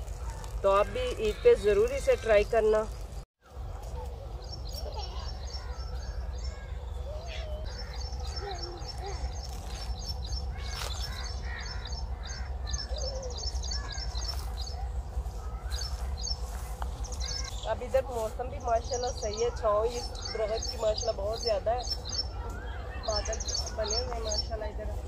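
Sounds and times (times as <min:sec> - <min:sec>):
birds chirping: 0:00.0 - 0:25.0
steady low rumble: 0:02.8 - 0:25.0
lower swooping bird calls: 0:03.9 - 0:18.0.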